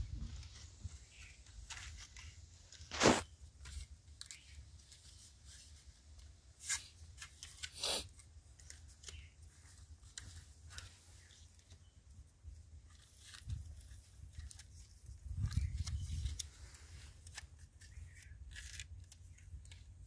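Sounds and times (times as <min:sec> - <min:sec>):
foil trays crinkling and scraping: 0:00.4 - 0:05.7.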